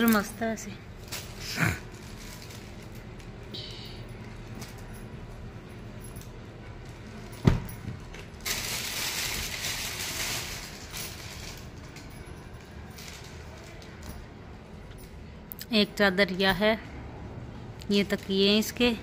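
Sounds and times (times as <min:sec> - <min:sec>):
crinkling plastic packaging: 0:00.9 - 0:03.5, 0:08.0 - 0:14.1.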